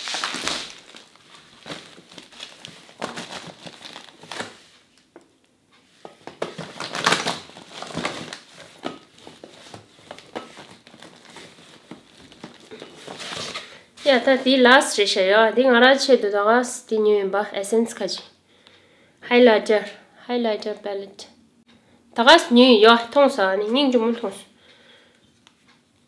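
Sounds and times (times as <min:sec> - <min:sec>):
plastic packaging crinkling: 0:00.0 - 0:05.2, 0:06.1 - 0:14.4.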